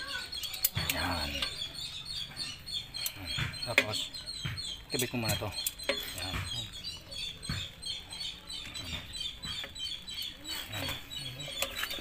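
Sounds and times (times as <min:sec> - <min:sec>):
small birds chirping: 0:00.0 - 0:12.0
sharp metallic clicks: 0:02.9 - 0:07.8.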